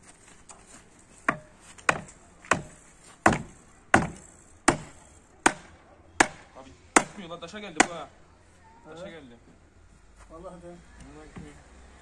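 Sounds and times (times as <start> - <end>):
sledgehammer striking wooden post: 1.3 - 8.1.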